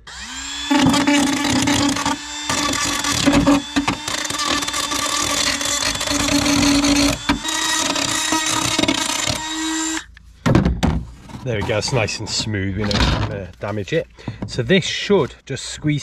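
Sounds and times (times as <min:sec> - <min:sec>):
cutting noise: 0:00.0 - 0:10.1
power tool motor whine: 0:00.0 - 0:10.1.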